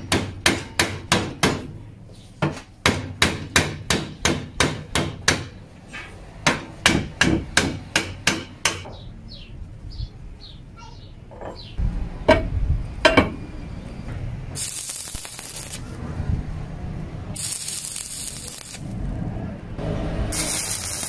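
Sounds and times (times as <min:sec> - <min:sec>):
sharp metal knocks: 0:06.4 - 0:09.0
welding arc crackling and hissing: 0:14.5 - 0:16.0, 0:17.3 - 0:19.1, 0:20.3 - 0:21.0.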